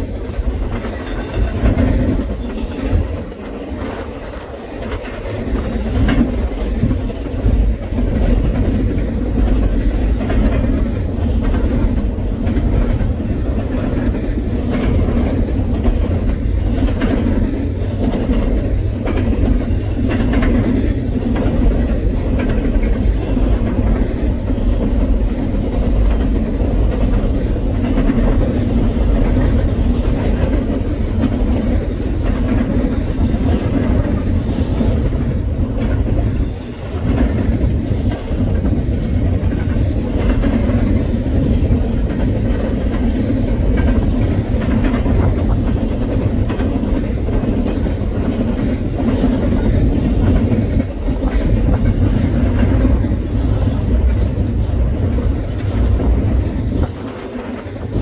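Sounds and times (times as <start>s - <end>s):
freight train rumbling past: 0.0s - 58.0s
wheels clicking over rail joints: 0.0s - 58.0s.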